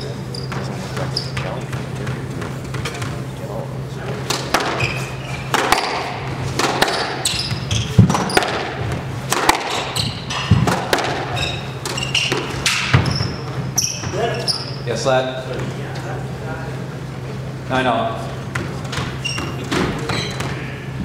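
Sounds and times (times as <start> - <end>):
sneaker squeaks on hardwood: 0.1 - 3.2, 4.3 - 9.0, 9.6 - 14.9, 18.6 - 20.9
squash ball strikes: 4.2 - 14.2.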